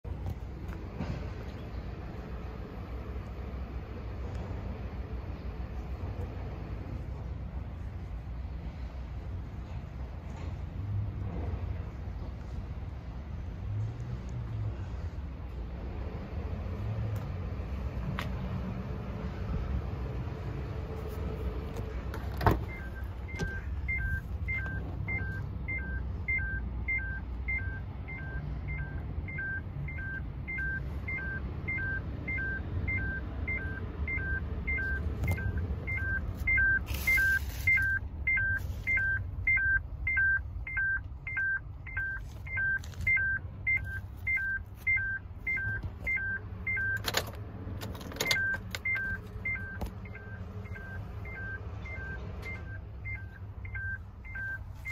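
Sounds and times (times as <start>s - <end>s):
clunks: 21.7s - 25.4s.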